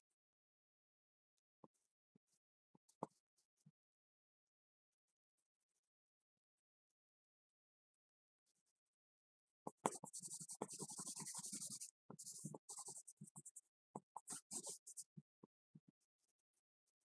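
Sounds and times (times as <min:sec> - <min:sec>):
pencil scratching on paper: 0:09.7 - 0:15.1.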